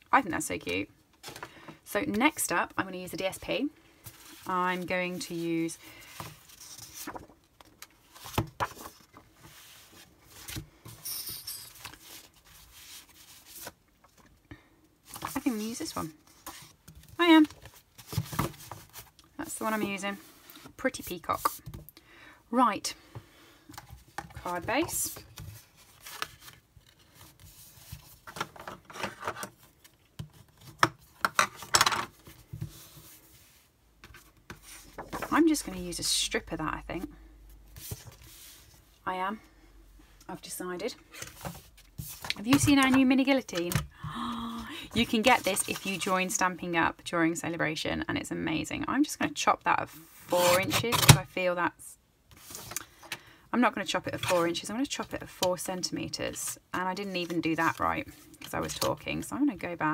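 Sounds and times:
paper sheets shuffling: 4.0s - 14.2s, 23.8s - 30.8s, 31.6s - 35.8s, 37.7s - 38.9s, 41.2s - 43.7s, 45.0s - 46.4s
paper sliding and rustling: 6.0s - 7.4s, 37.7s - 38.9s.

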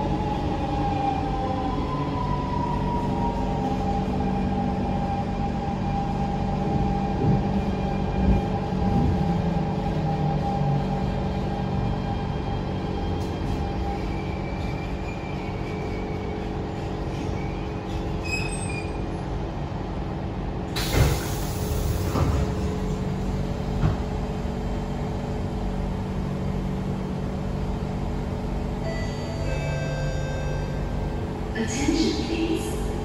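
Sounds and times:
train equipment hum: 0.0s - 33.0s
faint brake squeal: 17.2s - 19.0s
train doors knocking open: 20.8s - 22.9s, 23.6s - 24.2s.

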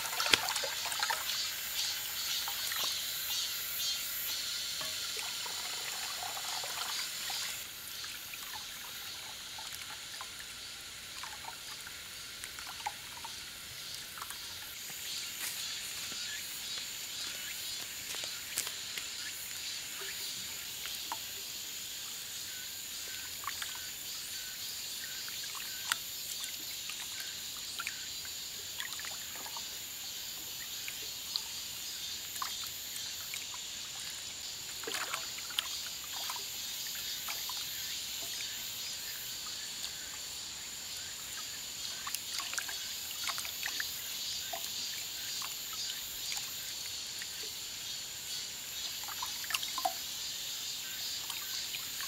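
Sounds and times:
water running from hose: 0.0s - 3.6s, 4.3s - 10.4s.

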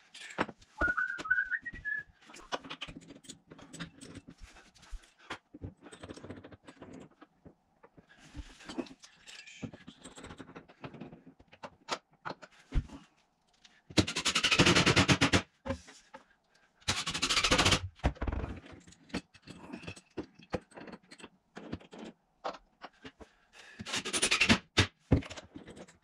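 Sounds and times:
clamps clicking and knocking on wood: 23.8s - 26.0s.

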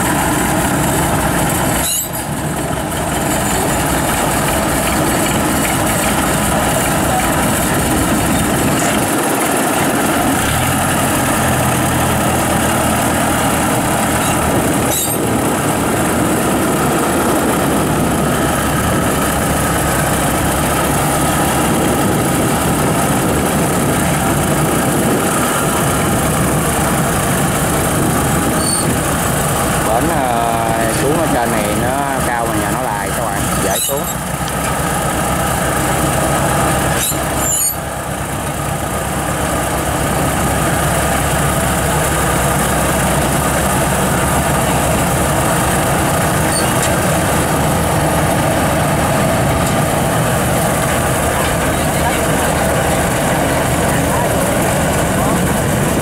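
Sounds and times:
tracked vehicle engine running: 0.0s - 56.0s.

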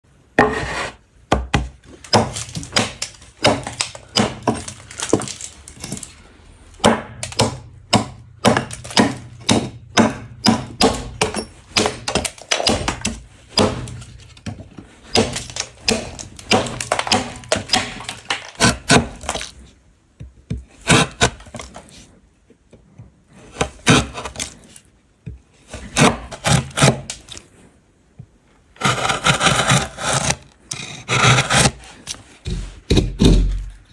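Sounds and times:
scraping across wood: 0.4s - 1.0s
carving tool cutting wood: 15.1s - 19.5s, 20.8s - 21.6s, 23.6s - 24.6s, 25.8s - 27.4s, 28.8s - 32.2s.

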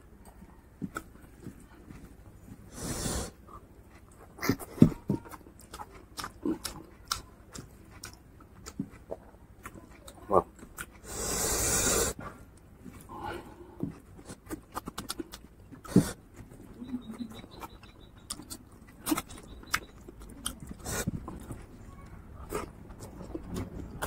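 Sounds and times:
wet chewing and lip smacks: 3.5s - 11.1s, 13.8s - 21.7s
slurping: 11.0s - 12.2s.

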